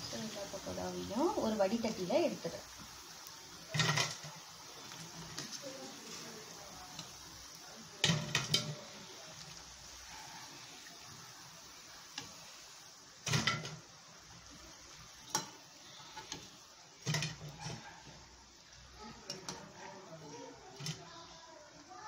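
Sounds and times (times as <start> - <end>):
oil sizzling: 0.0 - 22.0
metal spoon scraping pan: 3.7 - 4.3, 15.3 - 17.9.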